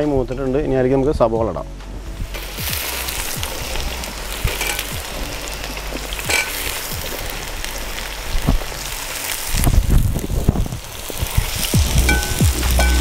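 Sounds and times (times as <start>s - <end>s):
onions sizzling in oil: 2.2s - 13.0s.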